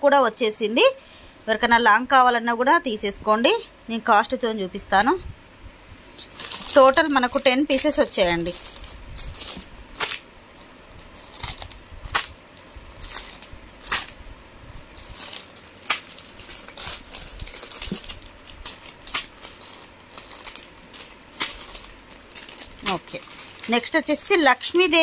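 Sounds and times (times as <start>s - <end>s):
plastic packets rustling: 6.2s - 25.0s.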